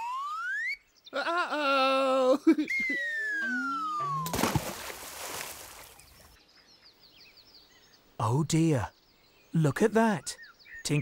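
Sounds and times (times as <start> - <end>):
splash in a puddle: 4.2 - 6.0.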